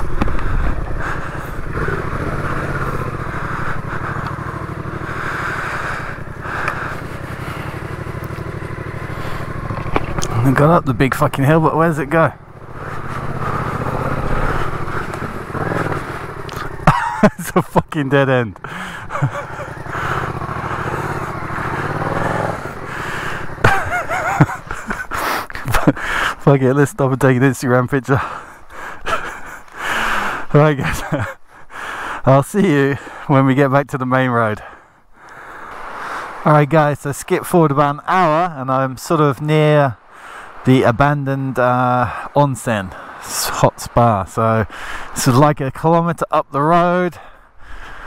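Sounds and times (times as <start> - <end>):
motorcycle engine chugging: 0.0 - 26.5, 27.5 - 31.4.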